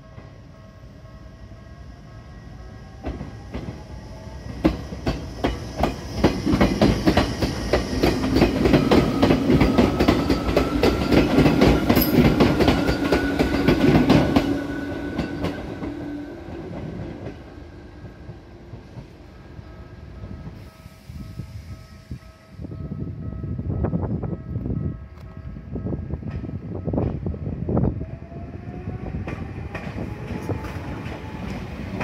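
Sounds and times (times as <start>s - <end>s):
train wheels clacking over rail joints: 4.6s - 16.0s.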